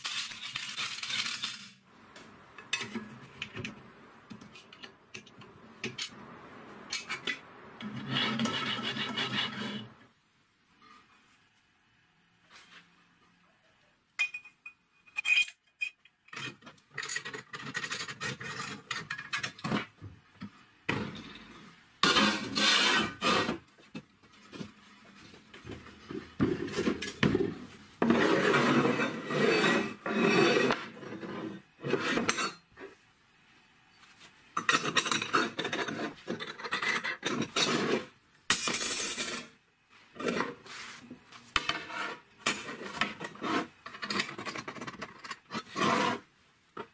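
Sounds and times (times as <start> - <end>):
metal scraping on wood: 7.8 - 10.0, 22.0 - 23.6, 28.0 - 32.6, 35.2 - 38.1, 41.6 - 46.3.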